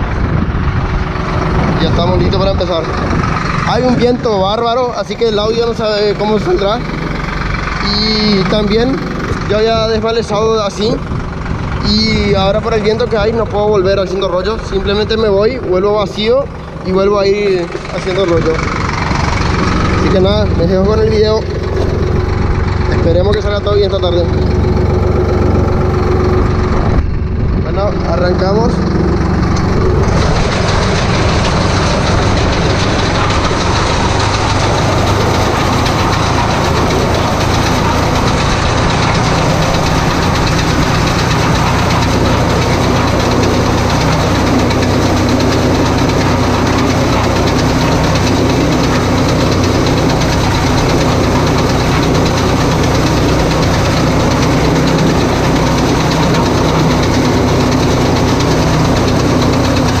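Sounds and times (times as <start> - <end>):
wind on microphone: 0.0 - 4.5
steady higher hum: 0.0 - 60.0
tractor engine running: 0.0 - 60.0.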